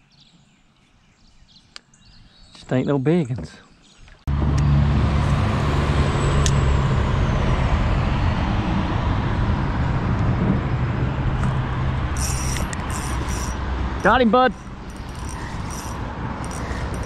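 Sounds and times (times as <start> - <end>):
road traffic rumble and tyre hiss: 4.3 - 17.0.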